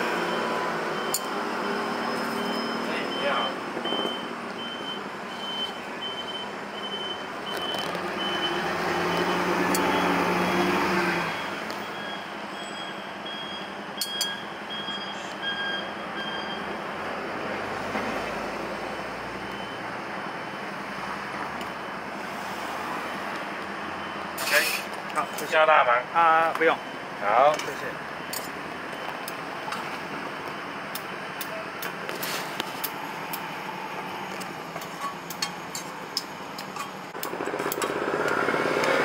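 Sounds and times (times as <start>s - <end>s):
street noise: 0.0s - 39.0s
high electronic beeps: 0.2s - 10.7s, 11.3s - 16.7s
vehicle engine passing: 7.9s - 11.7s, 37.2s - 39.0s.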